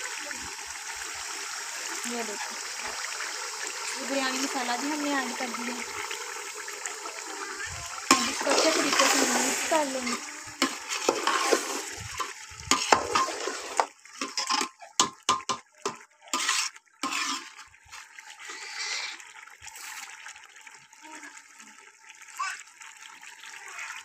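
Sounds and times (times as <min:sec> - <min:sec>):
ladle scraping a metal pot: 0:07.7 - 0:19.2.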